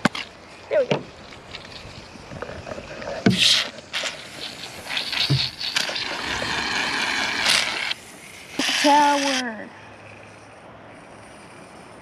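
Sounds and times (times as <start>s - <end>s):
aerosol can spraying: 3.4s - 9.5s.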